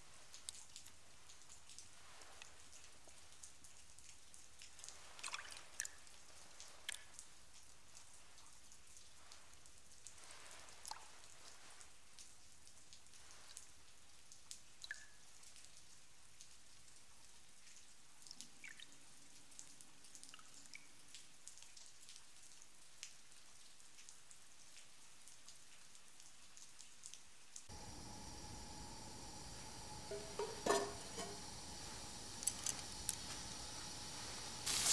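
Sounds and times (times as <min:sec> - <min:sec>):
faint water drips and ticks: 0:00.0 - 0:34.6.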